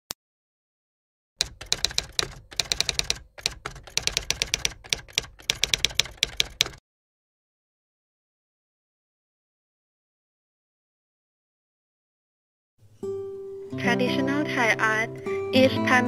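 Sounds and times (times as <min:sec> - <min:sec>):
typewriter key clacks: 0:01.4 - 0:06.8.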